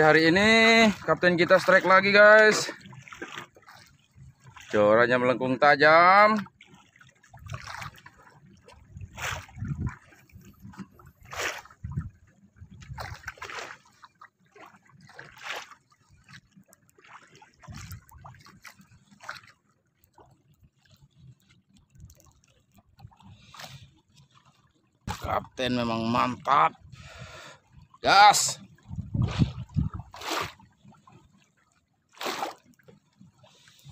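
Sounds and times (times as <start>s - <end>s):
water splashing against boat: 0.0s - 33.9s.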